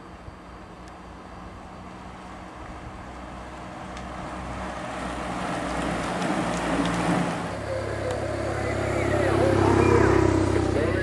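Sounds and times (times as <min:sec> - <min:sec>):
vehicle engine and road noise: 0:00.0 - 0:11.0.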